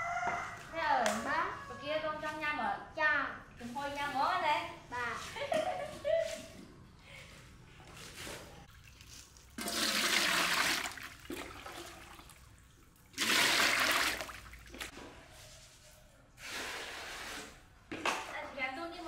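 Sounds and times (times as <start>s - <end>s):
water pouring into metal pot: 8.7s - 14.8s.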